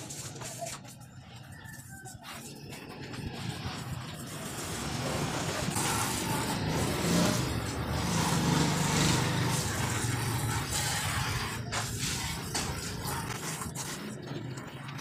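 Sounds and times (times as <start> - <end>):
street noise hiss: 0.0 - 15.0
vehicle engine passing: 3.1 - 14.7.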